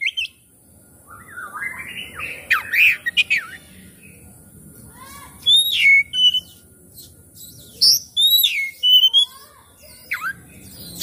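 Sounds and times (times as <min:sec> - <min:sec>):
bird singing whistled phrases: 0:00.0 - 0:00.4, 0:01.1 - 0:03.6, 0:05.4 - 0:11.0.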